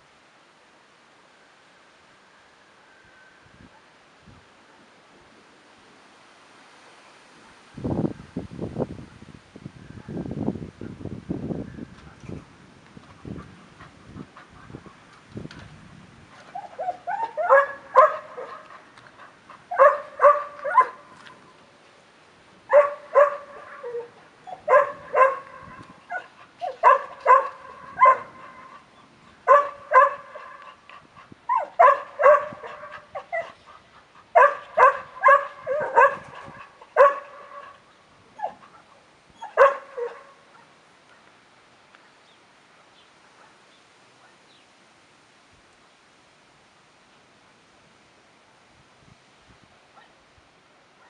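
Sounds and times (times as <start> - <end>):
dog barking: 16.8 - 18.7, 19.7 - 21.0, 22.7 - 28.8, 29.5 - 30.7, 31.5 - 33.6, 34.4 - 37.8, 38.4 - 40.7, 50.0 - 50.2.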